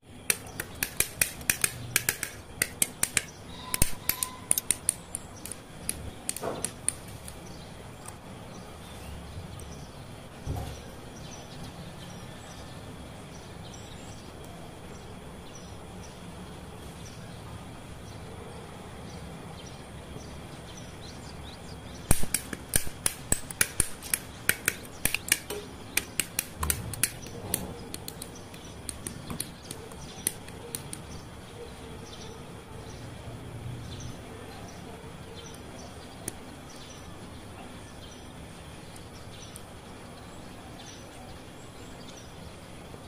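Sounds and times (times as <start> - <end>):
side cutters snipping plastic: 0.2 - 7.4, 22.1 - 31.1.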